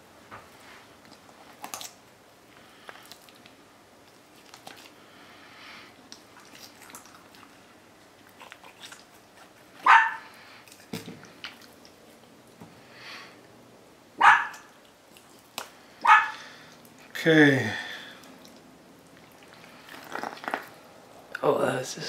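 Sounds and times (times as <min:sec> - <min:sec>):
dog barking: 0:09.8 - 0:10.3, 0:14.2 - 0:14.7, 0:16.0 - 0:16.4.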